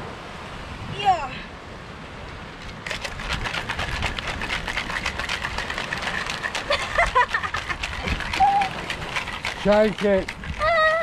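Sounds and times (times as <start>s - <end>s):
ice rattling in cocktail shaker: 2.8s - 11.0s.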